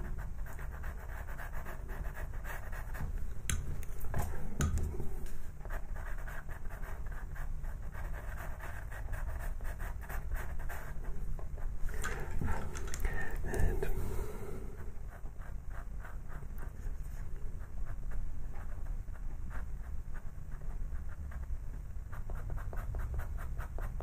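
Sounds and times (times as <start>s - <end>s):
pencil scratching on paper: 0.0s - 3.2s, 4.0s - 11.0s, 15.0s - 21.5s, 22.1s - 24.0s.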